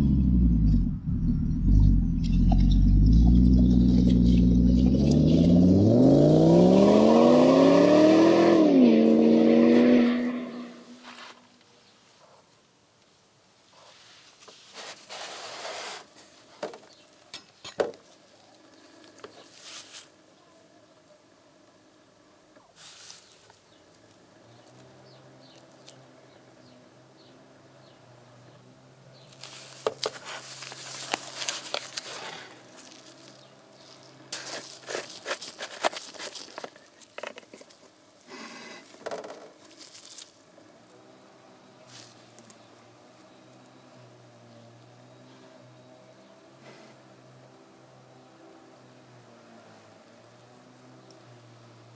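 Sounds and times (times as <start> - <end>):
plastic jug handling crinkles: 29.4 - 38.0, 38.8 - 40.4
plastic jug scraping: 34.3 - 37.7.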